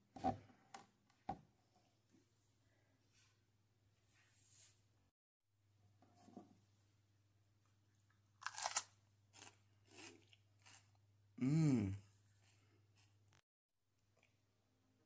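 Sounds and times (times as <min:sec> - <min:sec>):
biting into raw cauliflower: 0:08.4 - 0:10.9
chewing crunches: 0:08.4 - 0:11.0
short vocal sound: 0:11.4 - 0:12.1.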